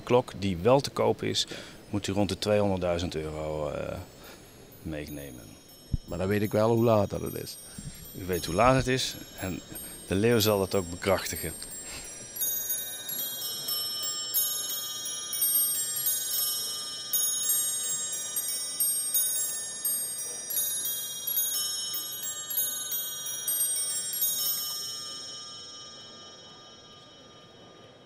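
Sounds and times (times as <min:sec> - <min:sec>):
musical clock bells playing tune: 0:02.8 - 0:28.0.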